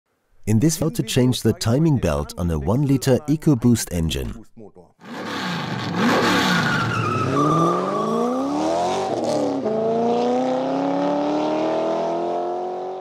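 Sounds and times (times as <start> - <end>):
car engine revving: 5.0 - 13.0.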